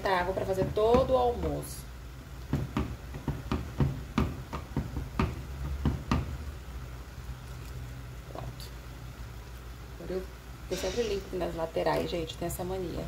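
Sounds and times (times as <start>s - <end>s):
spatula tapping metal pot: 0.3s - 1.7s, 2.5s - 6.4s.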